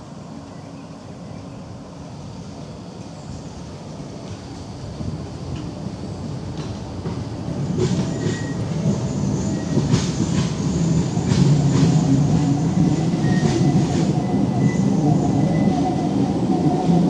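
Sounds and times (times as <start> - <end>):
tram low rumble: 0.0 - 17.0
faint high wheel squeal: 8.0 - 10.0, 13.2 - 16.0.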